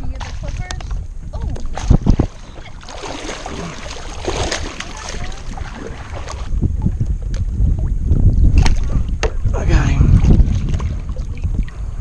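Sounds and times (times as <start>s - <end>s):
wind buffeting microphone: 0.0s - 12.0s
paddle strokes splashing water: 0.1s - 7.5s, 10.1s - 11.8s.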